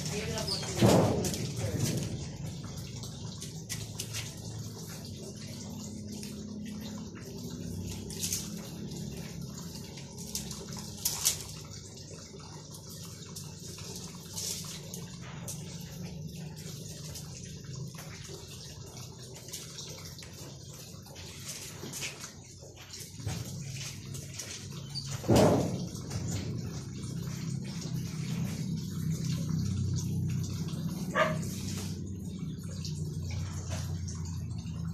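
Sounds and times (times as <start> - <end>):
cats chewing and licking: 26.0 - 34.8.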